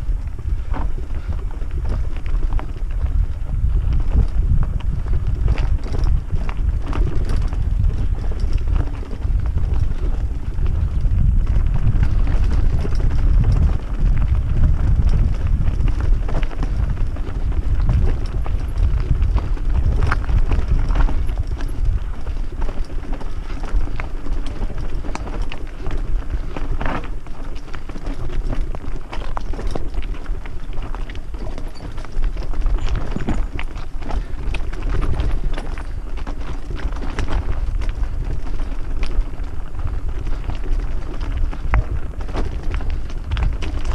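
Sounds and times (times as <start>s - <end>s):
bike rattling over stones: 0.0s - 43.9s
wind rumble on microphone: 0.0s - 43.9s.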